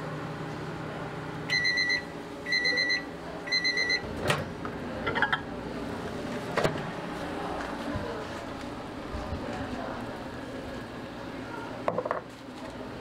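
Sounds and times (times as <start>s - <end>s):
microwave beeping: 1.4s - 5.5s.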